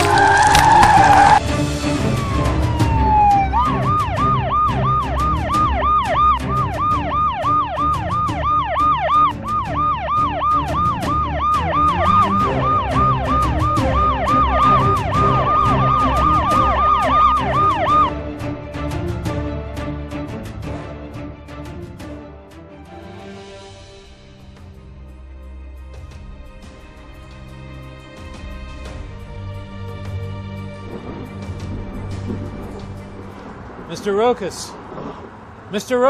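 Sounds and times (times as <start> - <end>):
emergency vehicle siren: 0.0 - 19.0.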